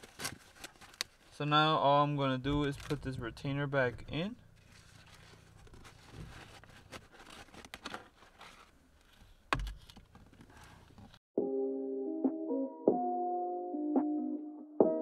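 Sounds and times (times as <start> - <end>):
faint rustling: 4.1 - 11.2.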